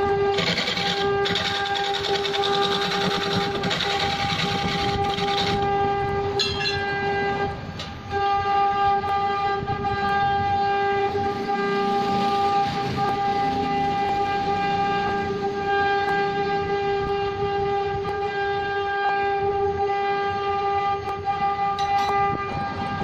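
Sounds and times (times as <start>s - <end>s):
wood lathe whining: 0.0s - 5.6s.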